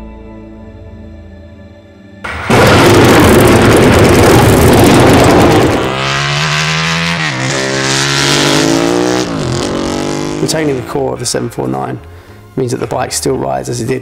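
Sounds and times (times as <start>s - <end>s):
motorcycle engine revving loudly: 2.3s - 10.9s.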